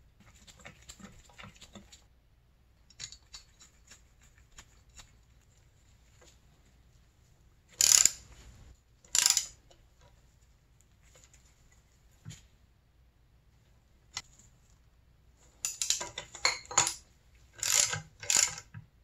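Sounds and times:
tools being handled: 7.7 - 8.5, 9.1 - 10.2, 15.4 - 18.8
ratchet wrench clicking: 7.8 - 8.2, 9.1 - 9.6, 17.6 - 18.7.

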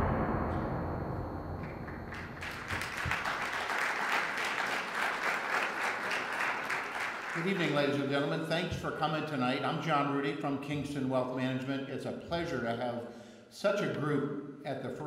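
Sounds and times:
audience applauding: 1.9 - 8.2.

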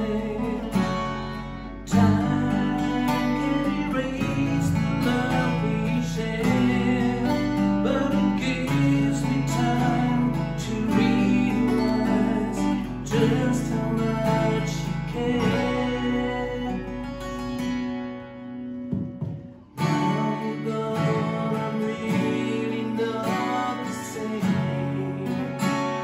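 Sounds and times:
acoustic guitars playing: 0.0 - 26.0.

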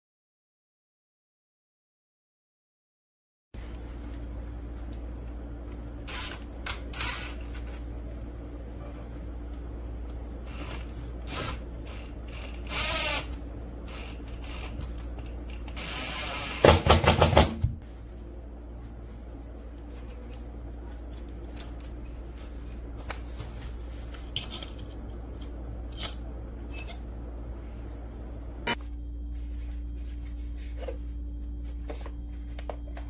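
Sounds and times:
steady low hum: 3.6 - 33.0
cordless drill running: 6.1 - 7.6, 10.5 - 14.8, 15.7 - 16.8.

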